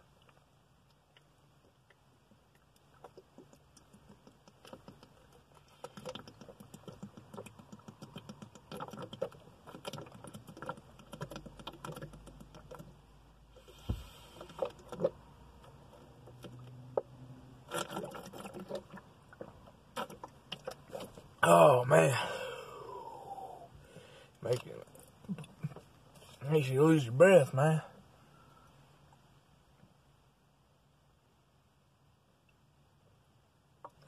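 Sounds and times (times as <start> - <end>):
man gulping a drink: 1.1 - 12.8, 13.7 - 15.3, 17.6 - 23.7, 24.9 - 25.9
single thump: 13.8 - 14.2.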